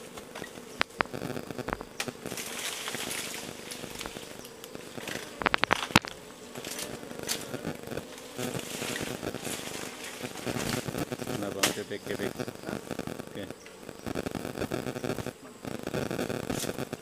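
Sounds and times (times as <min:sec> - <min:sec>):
honeybee colony buzzing: 0:00.0 - 0:17.0
sharp clicks: 0:00.4 - 0:03.0, 0:03.7 - 0:07.6.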